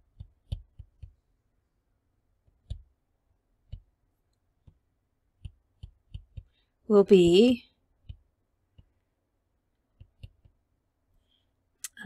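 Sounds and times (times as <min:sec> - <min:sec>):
stylus tapping tablet screen: 0:00.0 - 0:01.3, 0:02.4 - 0:03.0, 0:03.6 - 0:04.0, 0:04.6 - 0:09.0, 0:09.9 - 0:10.7.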